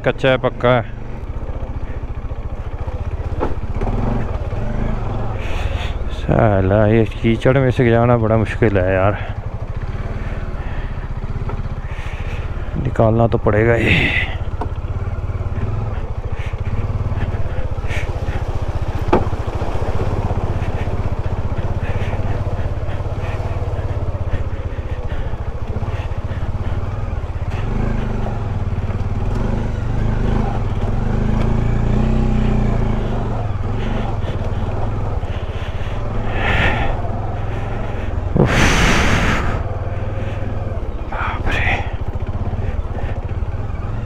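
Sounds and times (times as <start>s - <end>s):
motorcycle engine running: 0.0s - 44.0s
loud rushing burst: 38.4s - 39.7s.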